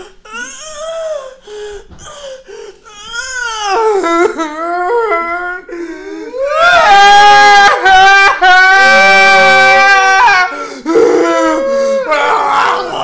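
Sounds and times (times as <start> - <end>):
men wailing and sobbing: 3.8 - 13.0.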